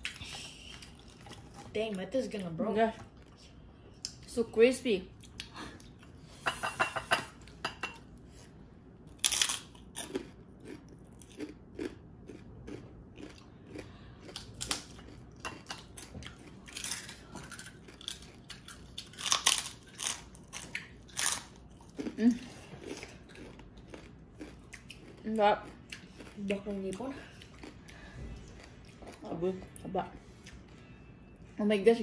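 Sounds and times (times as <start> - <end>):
crunching and chewing pork rinds: 0.0 - 1.8, 9.1 - 29.8.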